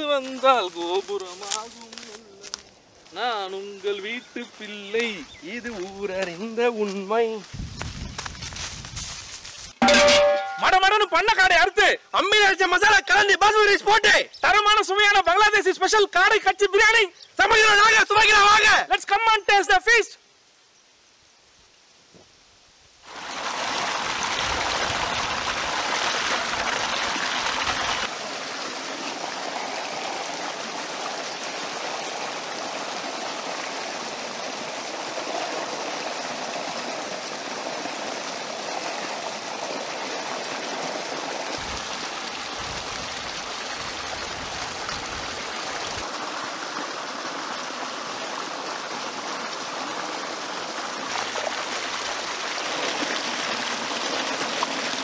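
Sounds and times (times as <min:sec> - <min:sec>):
water gushing into stone tank: 0:23.0 - 0:55.0.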